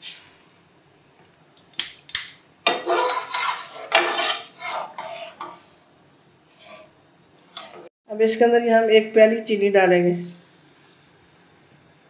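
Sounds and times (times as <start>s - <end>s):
metal spoon scraping a metal pan: 2.7s - 5.8s, 6.5s - 7.9s.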